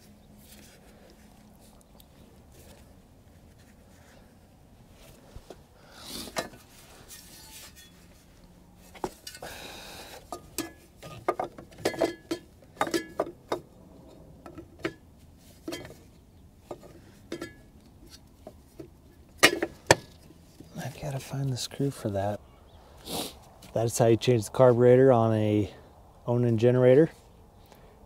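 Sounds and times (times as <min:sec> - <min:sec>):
metal scraping: 0:06.2 - 0:09.4.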